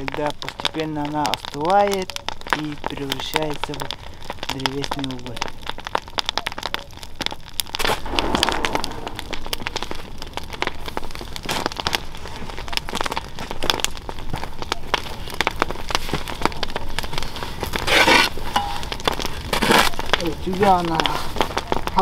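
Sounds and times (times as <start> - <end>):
wood fire crackling and popping: 0.0 - 22.0
shovel scraping coals in steel barrel: 17.6 - 21.6.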